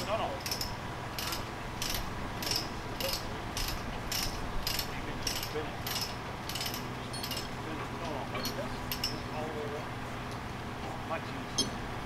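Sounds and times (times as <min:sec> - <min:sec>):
ratchet pawl clicking: 0:00.4 - 0:07.5.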